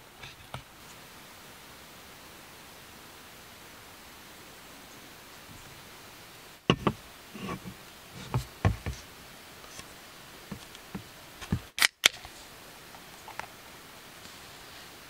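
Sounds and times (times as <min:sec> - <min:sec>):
low steady hiss: 0:00.0 - 0:15.0
objects knocking and tapping: 0:06.7 - 0:09.0.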